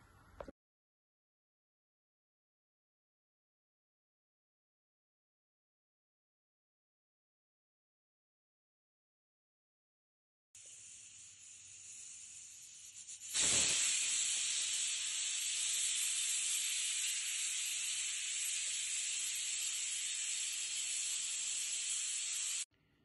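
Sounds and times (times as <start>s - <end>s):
pressure cooker steam hiss: 10.6s - 22.7s.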